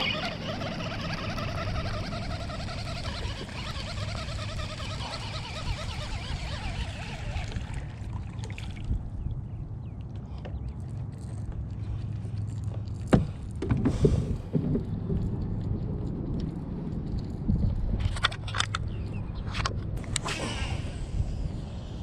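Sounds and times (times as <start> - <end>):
low rumble: 14.1 - 22.0.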